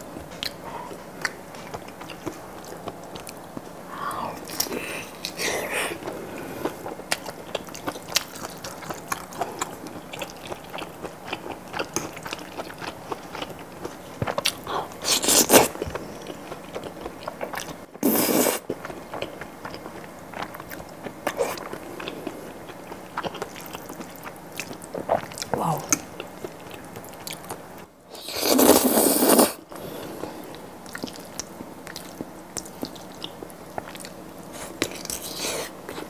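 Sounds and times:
slurping noodles: 28.2s - 29.6s
wet chewing and mouth clicks: 30.8s - 34.2s.

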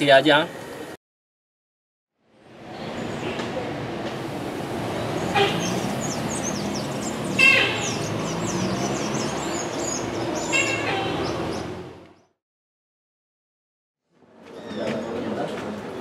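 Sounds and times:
vehicle rumble: 2.4s - 12.3s
birds chirping: 4.7s - 12.4s.

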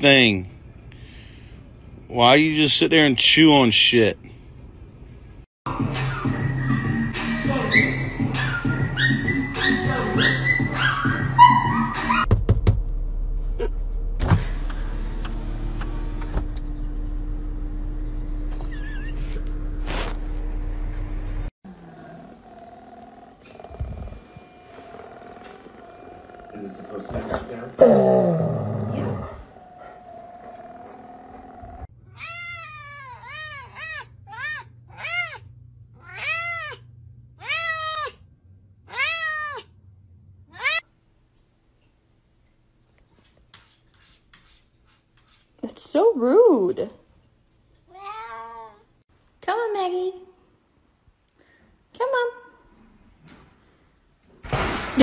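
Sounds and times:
cat meowing: 29.6s - 35.4s, 36.0s - 36.8s, 37.4s - 38.2s, 38.9s - 39.7s.

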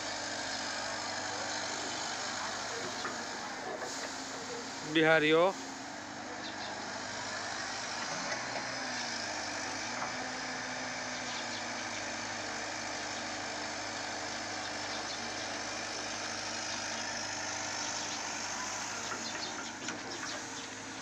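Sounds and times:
heavy machinery drone: 0.0s - 10.0s, 14.3s - 21.0s
diesel engine hum: 0.0s - 21.0s.

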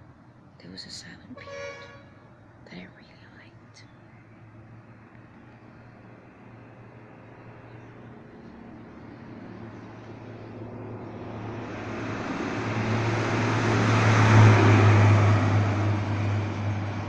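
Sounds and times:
vehicle passing: 4.0s - 17.0s.

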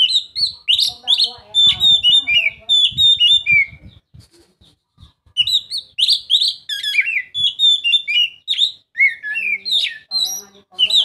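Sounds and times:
bird singing whistled notes: 0.0s - 4.2s, 5.4s - 11.0s.

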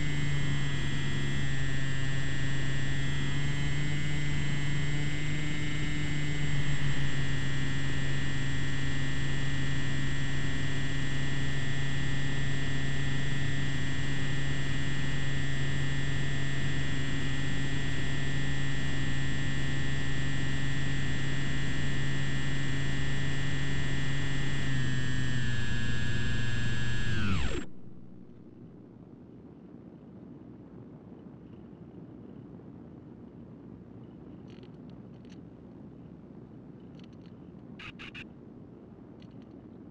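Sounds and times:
electric motor and propeller whine: 0.0s - 28.7s.

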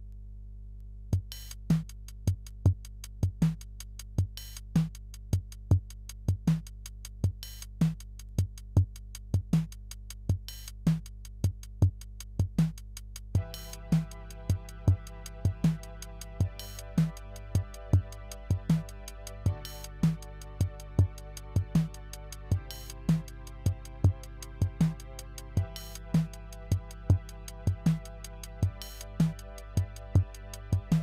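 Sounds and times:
drum machine beat: 1.2s - 31.0s
held synthesizer notes: 13.4s - 31.0s
low bass drone: 13.4s - 31.0s.

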